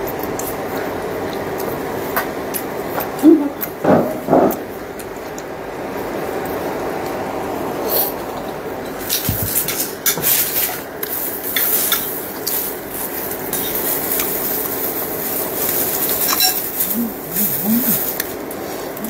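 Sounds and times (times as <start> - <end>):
chewing: 15.7 - 19.0.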